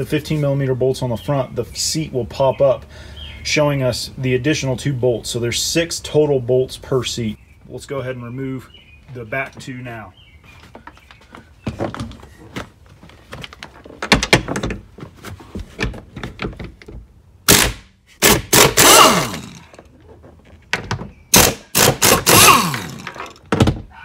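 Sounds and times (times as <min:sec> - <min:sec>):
power tool running: 0:18.2 - 0:19.8, 0:21.4 - 0:23.2.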